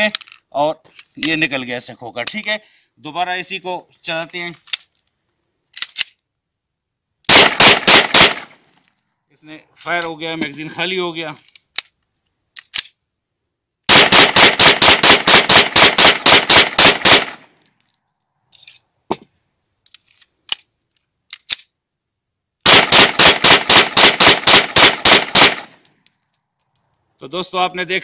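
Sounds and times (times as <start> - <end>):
pistol reloading clicks: 5.7 - 6.2, 11.4 - 13.0, 19.9 - 21.8
pistol shots: 7.3 - 8.6, 13.9 - 17.4, 22.6 - 25.8.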